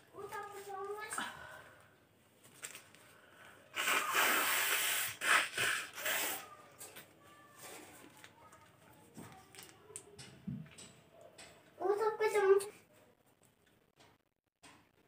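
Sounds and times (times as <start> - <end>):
woman blowing through her nose: 3.7 - 6.6.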